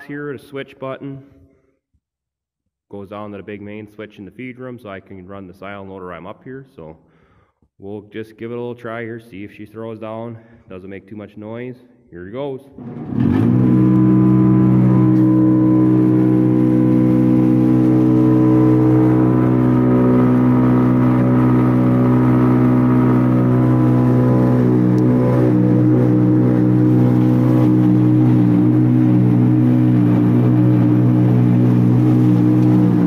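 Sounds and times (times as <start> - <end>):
silo unloader humming: 12.8 - 33.0.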